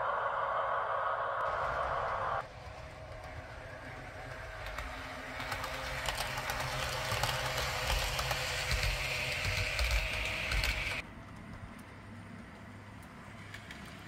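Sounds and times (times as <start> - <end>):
model train whine: 0.0 - 11.0
model train wheels clicking: 2.4 - 14.0.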